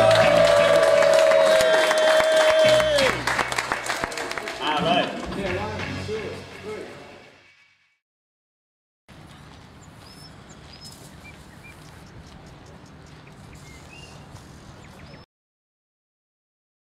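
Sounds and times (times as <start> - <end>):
high bird chirps: 9.8 - 15.3.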